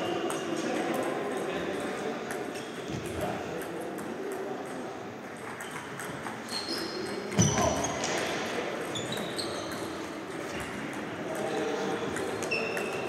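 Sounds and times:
ping-pong balls clicking: 0:00.2 - 0:06.5, 0:08.1 - 0:13.0
short high squeaks: 0:06.4 - 0:08.0, 0:08.9 - 0:09.9.

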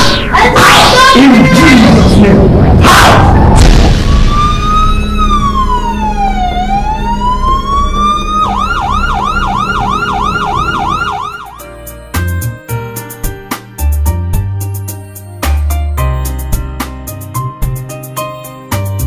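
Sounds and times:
electronic siren wailing and yelping: 0:00.0 - 0:01.2, 0:02.8 - 0:11.7.

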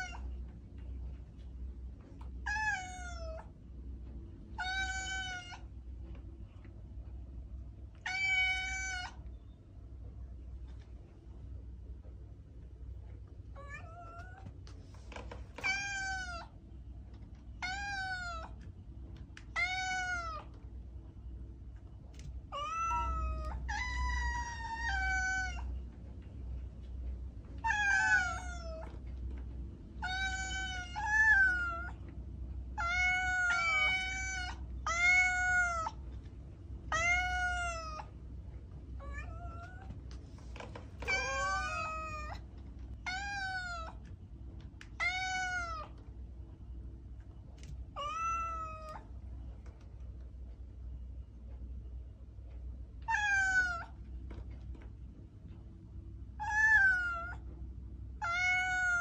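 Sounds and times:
cat meowing: 0:00.0 - 0:00.3, 0:02.4 - 0:03.5, 0:04.6 - 0:05.7, 0:08.0 - 0:09.2, 0:13.6 - 0:14.5, 0:15.6 - 0:16.6, 0:17.6 - 0:18.6, 0:19.4 - 0:20.6, 0:22.5 - 0:25.7, 0:27.6 - 0:28.9, 0:30.0 - 0:32.0, 0:32.8 - 0:36.0, 0:36.9 - 0:38.1, 0:41.0 - 0:42.4, 0:43.0 - 0:44.0, 0:45.0 - 0:46.0, 0:48.0 - 0:49.1, 0:53.0 - 0:54.0, 0:56.4 - 0:57.5, 0:58.2 - 0:59.0.

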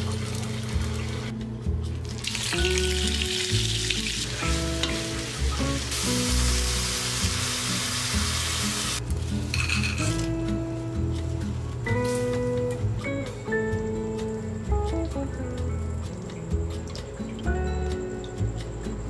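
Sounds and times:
soft background music: 0:00.0 - 0:19.0
food sizzling in hot oil: 0:02.1 - 0:09.0.

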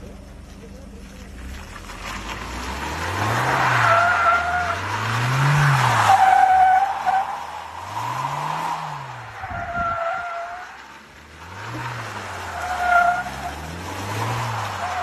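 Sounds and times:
car engine revving: 0:00.0 - 0:15.0
tyres squealing on tarmac: 0:03.3 - 0:11.0, 0:12.3 - 0:15.0.

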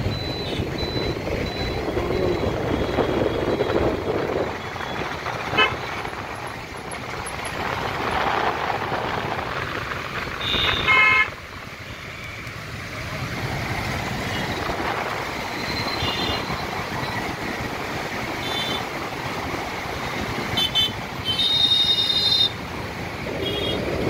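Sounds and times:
road traffic rumble: 0:00.0 - 0:24.0
vehicle horn: 0:10.4 - 0:11.3, 0:20.6 - 0:22.5, 0:23.4 - 0:23.9.

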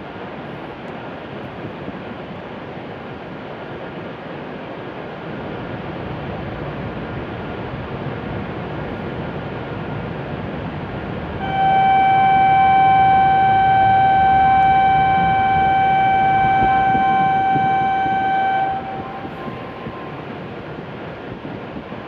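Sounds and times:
train platform background noise: 0:00.0 - 0:22.0
steady horn-like tone: 0:11.4 - 0:20.8.

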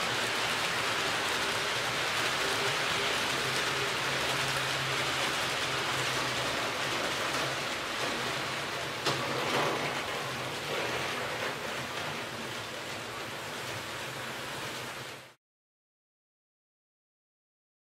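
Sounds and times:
model train wheels rattling: 0:00.0 - 0:13.8.

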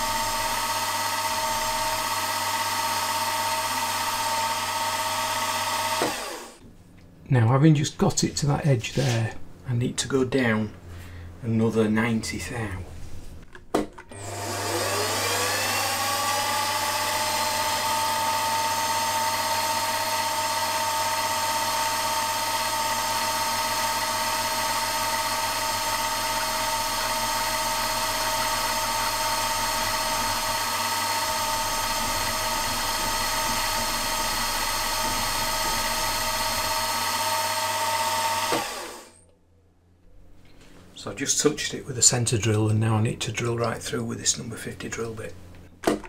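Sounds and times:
milling spindle whining: 0:14.2 - 0:39.1.

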